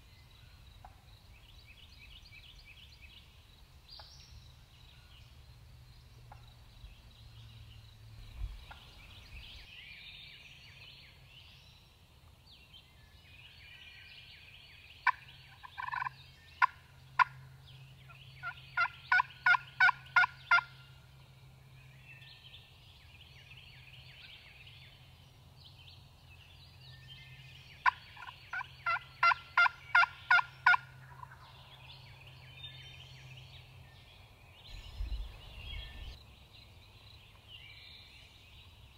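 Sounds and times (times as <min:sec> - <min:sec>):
turkey calling: 0:15.0 - 0:17.3, 0:18.4 - 0:20.7, 0:27.8 - 0:31.5.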